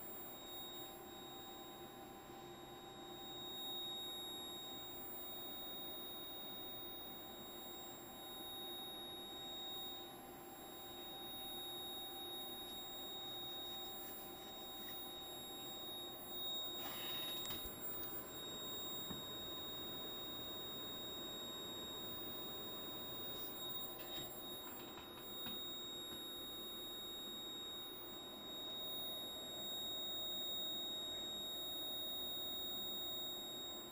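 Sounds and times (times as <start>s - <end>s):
high-pitched electronic whine: 0.0s - 33.9s
faint equipment hum: 8.9s - 27.0s.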